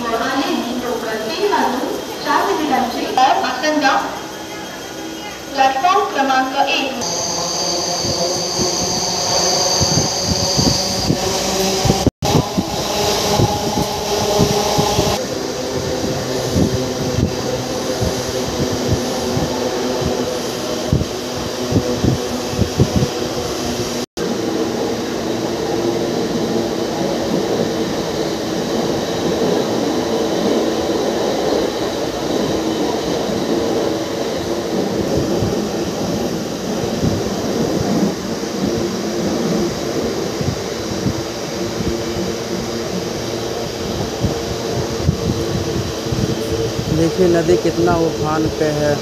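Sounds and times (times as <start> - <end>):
train wheels rumbling on track: 0.0 - 49.0.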